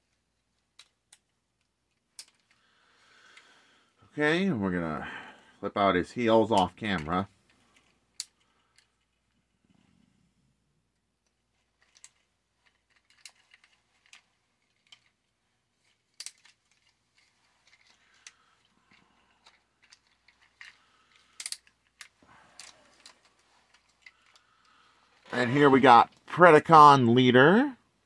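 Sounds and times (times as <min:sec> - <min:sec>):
handling rustle: 0:11.4 - 0:26.3
plastic clicks and snaps: 0:17.7 - 0:24.8.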